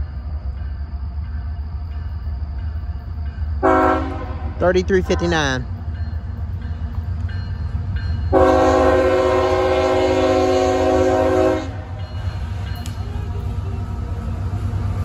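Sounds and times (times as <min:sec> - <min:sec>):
low train rumble: 0:00.0 - 0:15.0
locomotive horn blast: 0:03.6 - 0:05.6, 0:08.3 - 0:12.0.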